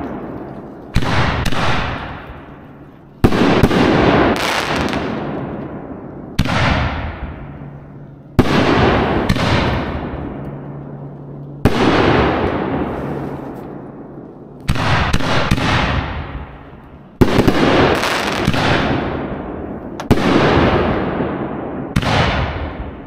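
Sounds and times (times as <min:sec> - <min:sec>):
firework bangs with rumble: 0:00.9 - 0:02.4, 0:06.4 - 0:07.5, 0:08.4 - 0:10.3, 0:20.0 - 0:23.0
small firework pops: 0:20.0 - 0:20.2.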